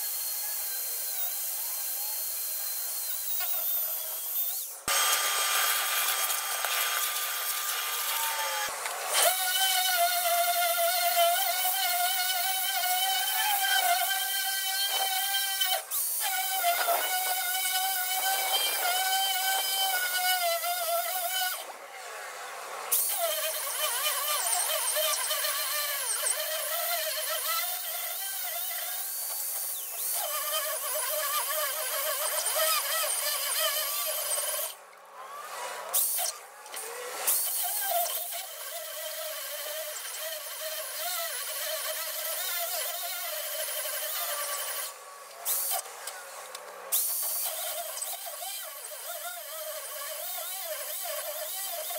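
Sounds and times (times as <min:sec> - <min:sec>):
hammer drill boring into steel: 0:00.0 - 0:21.6.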